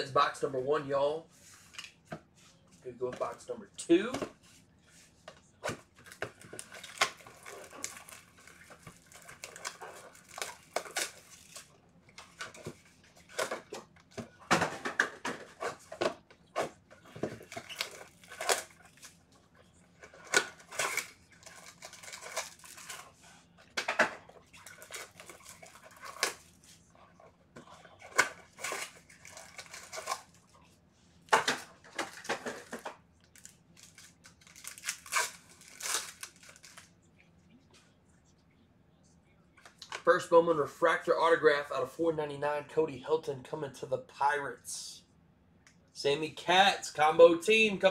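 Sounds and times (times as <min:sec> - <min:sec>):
foil packs tearing and crinkling: 0:06.0 - 0:11.7, 0:17.4 - 0:19.2, 0:20.1 - 0:23.0, 0:24.6 - 0:26.6, 0:28.1 - 0:30.4, 0:33.4 - 0:36.9.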